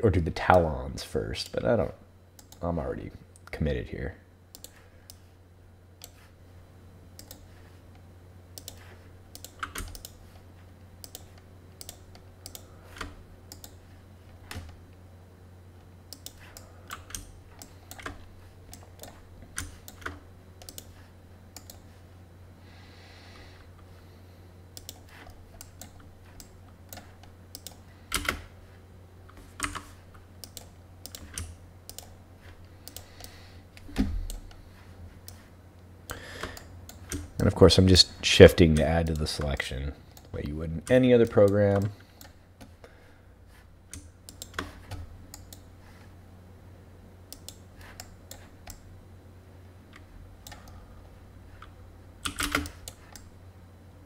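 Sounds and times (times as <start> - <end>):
steady low hum: 0.0 - 54.0
keyboard and mouse clicks: 7.2 - 7.4, 8.6 - 10.2, 11.0 - 13.8, 16.1 - 21.0, 21.6 - 21.8, 24.8 - 28.4, 29.3 - 32.2, 32.8 - 34.6, 36.1 - 37.5, 43.9 - 45.7, 47.3 - 48.8, 51.6 - 53.3.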